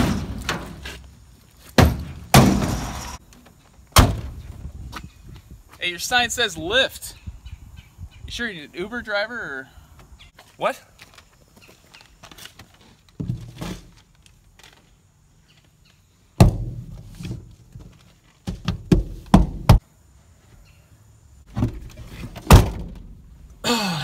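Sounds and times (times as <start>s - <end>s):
thumps on truck body: 1.8s - 3.0s, 4.0s - 4.4s, 16.4s - 17.4s, 18.5s - 19.8s, 21.5s - 23.1s.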